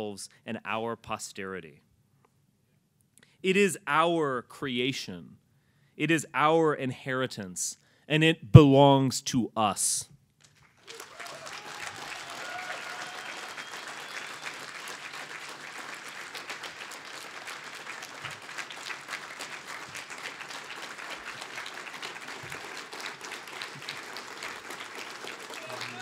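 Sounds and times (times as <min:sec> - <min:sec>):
audience applauding: 0:10.6 - 0:26.0.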